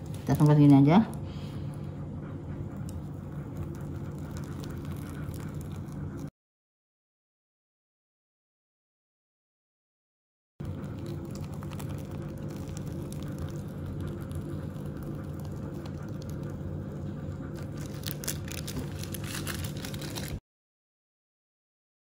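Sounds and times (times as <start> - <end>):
piping bag squishing cream: 0.0 - 6.3, 10.6 - 20.4
steady low hum: 0.0 - 6.3, 10.6 - 20.4.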